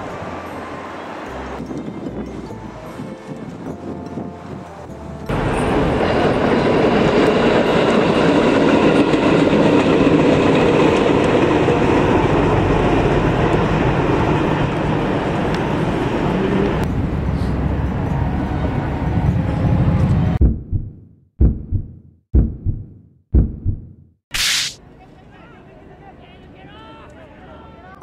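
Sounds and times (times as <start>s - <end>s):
train rumbling on rails: 0.0s - 20.4s.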